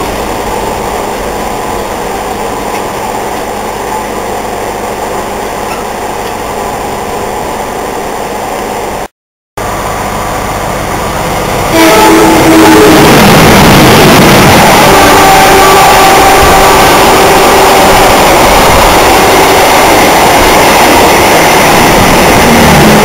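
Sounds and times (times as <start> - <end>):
passenger train rumbling past: 0.0 - 23.0
diesel locomotive horn: 11.7 - 20.6.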